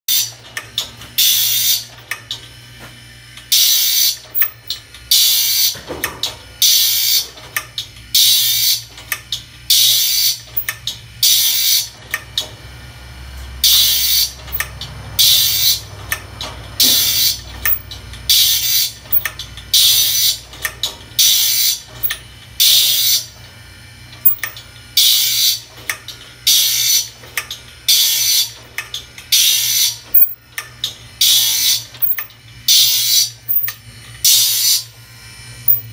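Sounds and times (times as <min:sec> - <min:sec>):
grinding wheel grinding saw teeth: 0:03.5 - 0:05.8, 0:13.6 - 0:16.0, 0:16.8 - 0:23.4, 0:24.2 - 0:25.7, 0:31.2 - 0:35.0, 0:35.7 - 0:35.9
low motor hum: 0:34.9 - 0:35.9.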